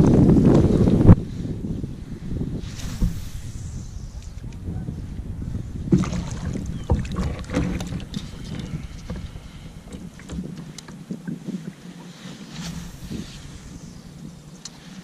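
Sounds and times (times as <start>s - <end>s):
paddle strokes splashing: 5.8s - 15.0s
knocks against kayak: 5.9s - 9.3s
low rumble: 12.4s - 14.9s.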